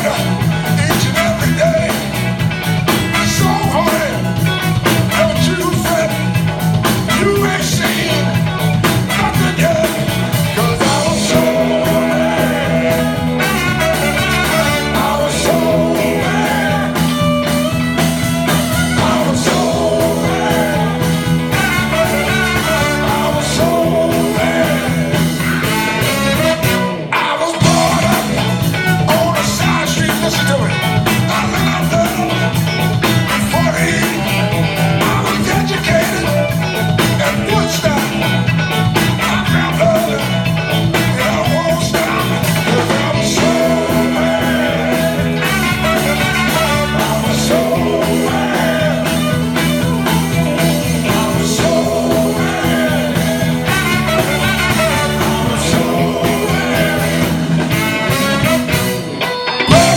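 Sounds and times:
live soul band playing: 0.0s - 59.9s
steady drums: 0.0s - 59.9s
walking bass line: 0.0s - 59.9s
person singing: 3.1s - 6.3s, 7.0s - 59.9s.

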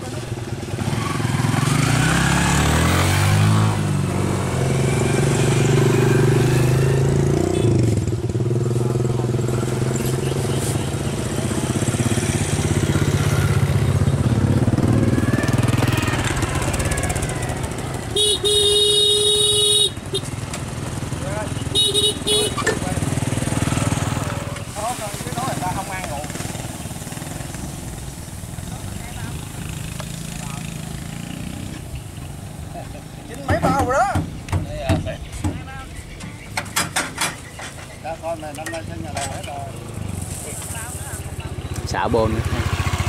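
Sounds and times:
motorbike engines running: 0.0s - 43.0s
motorbike horn: 7.4s - 8.0s, 18.0s - 20.4s, 21.6s - 22.9s.

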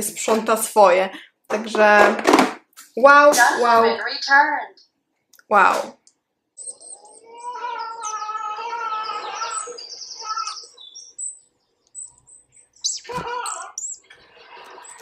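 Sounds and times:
birdsong through phone speaker: 3.6s - 5.0s, 6.6s - 15.0s.

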